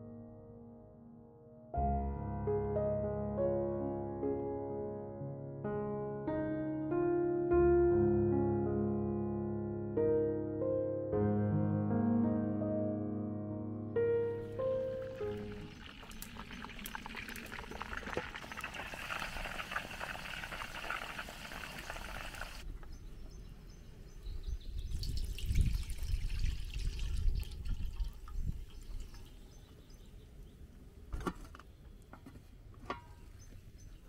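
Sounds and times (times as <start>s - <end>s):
crackling hiss: 14.5s - 22.6s
oil pouring into metal basin: 14.5s - 22.6s, 24.9s - 29.4s.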